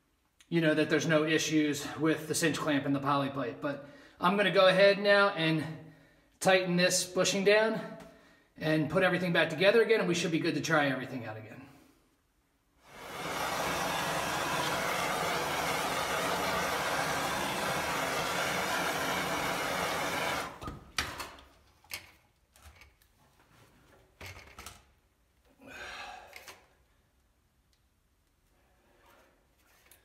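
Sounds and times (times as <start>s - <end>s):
small motor running: 13.0s - 20.6s.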